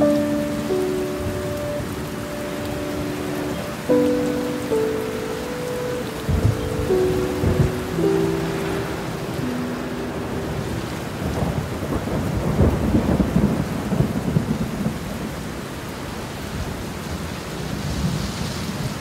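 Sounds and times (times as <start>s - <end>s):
heavy rain: 0.0s - 19.0s
thunder rumble: 6.1s - 15.6s.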